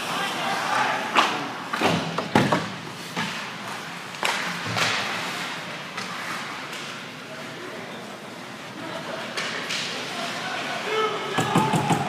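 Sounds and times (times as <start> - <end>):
hockey sticks and puck knocking: 1.1 - 5.2, 11.3 - 12.0.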